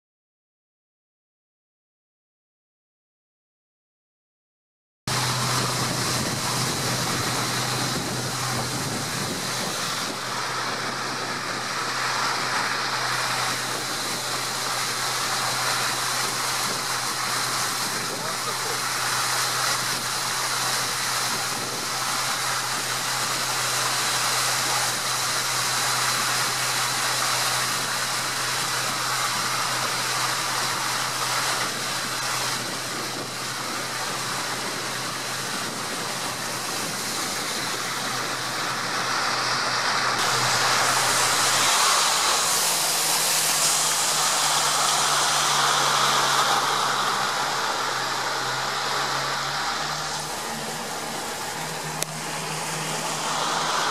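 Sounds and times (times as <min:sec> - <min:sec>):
wind noise: 0:05.1 - 0:44.5
motorboat engine humming: 0:05.1 - 0:53.9
rushing water: 0:05.1 - 0:53.9.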